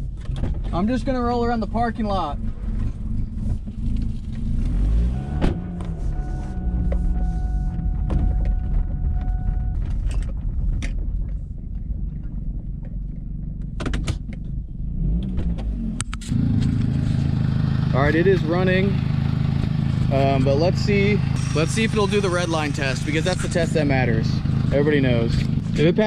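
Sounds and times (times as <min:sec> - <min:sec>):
car engine running: 0:00.0 - 0:26.0
thin steady high tone: 0:21.4 - 0:24.3.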